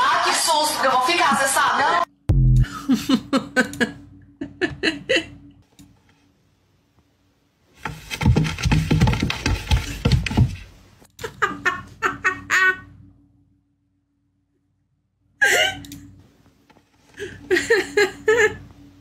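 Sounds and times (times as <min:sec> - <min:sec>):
woman laughing: 0:02.6 - 0:05.4, 0:11.2 - 0:12.9, 0:15.4 - 0:16.0, 0:17.1 - 0:18.7.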